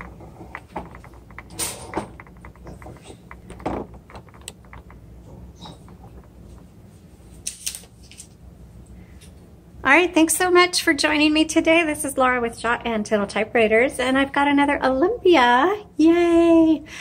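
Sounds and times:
handling clicks and knocks: 0:00.0 - 0:06.9
low steady hum: 0:00.0 - 0:17.0.

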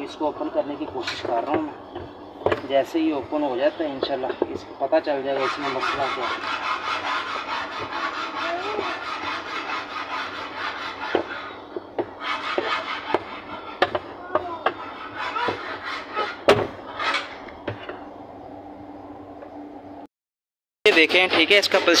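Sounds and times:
plastic scraping rub: 0:05.2 - 0:17.9.

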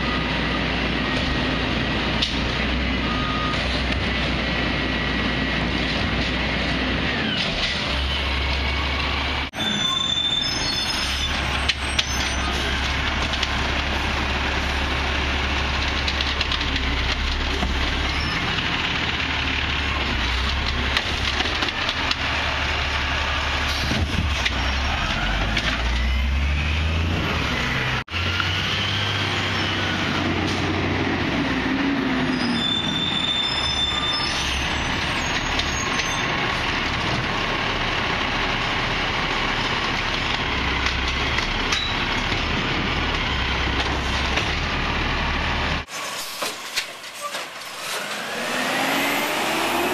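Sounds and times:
garbage truck engines humming: 0:00.0 - 0:49.9
hydraulic arms lifting carts: 0:45.9 - 0:49.9.

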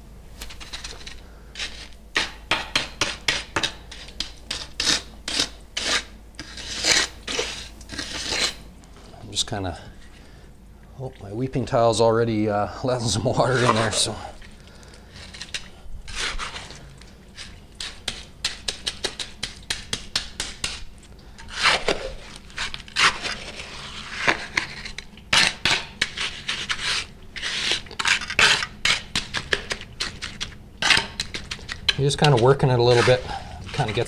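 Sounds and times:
trowel scraping concrete: 0:00.4 - 0:08.7, 0:12.9 - 0:14.3, 0:15.1 - 0:16.8, 0:17.4 - 0:20.8, 0:21.4 - 0:34.0
trowel tapping concrete: 0:02.2 - 0:05.5, 0:17.8 - 0:20.8.

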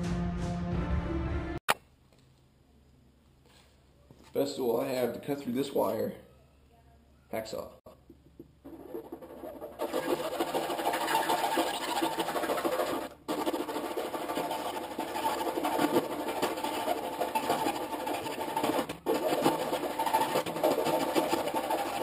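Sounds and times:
hacksaw cutting cable: 0:09.6 - 0:22.0.

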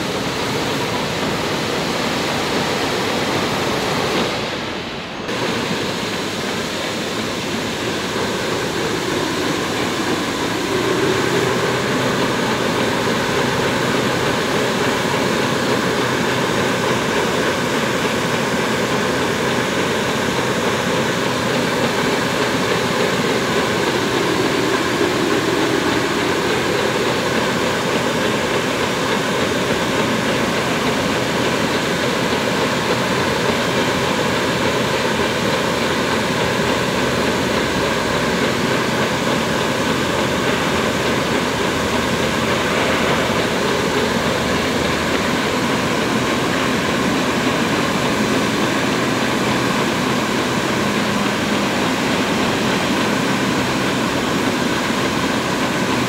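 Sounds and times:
sprayer fan blowing air: 0:00.0 - 0:56.0.

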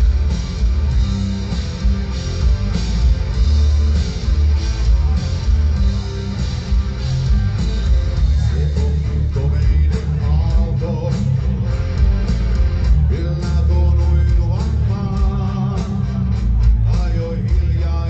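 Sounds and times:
live heavy rock band: 0:00.0 - 0:18.0.

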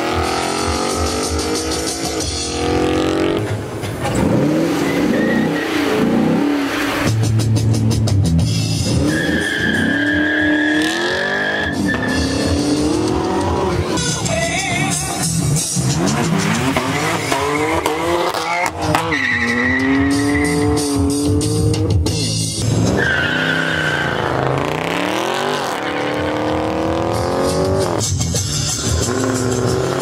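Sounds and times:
background music with bass: 0:00.0 - 0:30.0
car engines revving: 0:00.0 - 0:30.0
tire squeal: 0:04.0 - 0:07.1, 0:08.8 - 0:13.4, 0:16.2 - 0:21.3, 0:22.6 - 0:26.9.

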